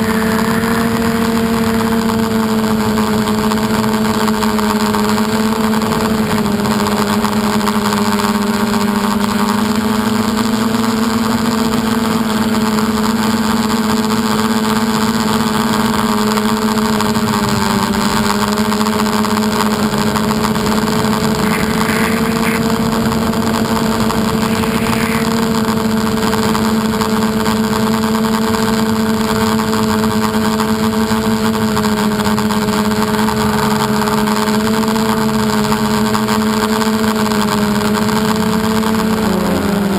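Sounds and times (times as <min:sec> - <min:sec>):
model aircraft motor humming: 0:00.0 - 0:39.9
constant hiss: 0:20.6 - 0:25.8.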